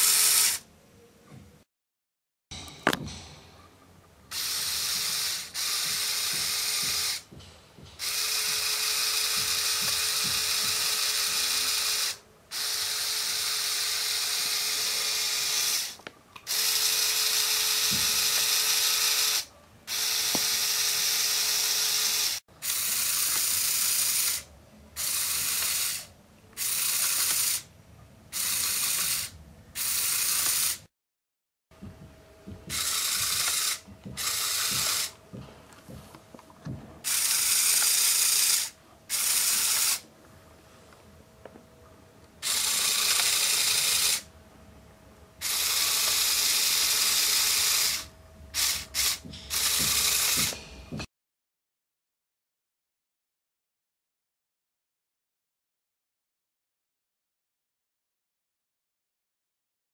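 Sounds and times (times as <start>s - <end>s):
small electric motor whirring: 0.0s - 0.6s, 4.3s - 7.3s, 8.0s - 27.7s, 28.4s - 30.9s, 32.7s - 35.2s, 37.0s - 40.0s, 42.4s - 44.3s, 45.4s - 50.6s.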